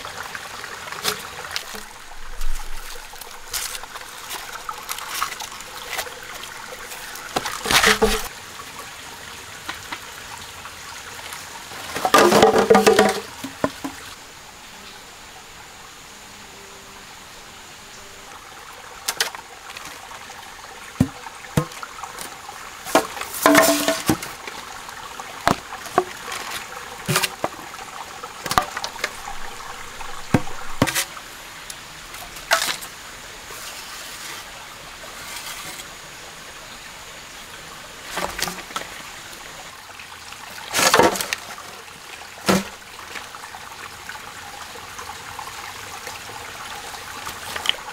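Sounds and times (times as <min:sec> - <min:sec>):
stream trickling: 0:00.0 - 0:47.9
bamboo rustling: 0:01.0 - 0:08.3, 0:11.7 - 0:14.2, 0:21.0 - 0:24.8, 0:25.4 - 0:36.0, 0:38.0 - 0:39.1, 0:40.6 - 0:41.8
bamboo knocking and cracking: 0:07.3 - 0:08.3, 0:12.0 - 0:14.1, 0:21.0 - 0:22.3, 0:22.9 - 0:24.3, 0:30.0 - 0:31.1, 0:42.5 - 0:42.8.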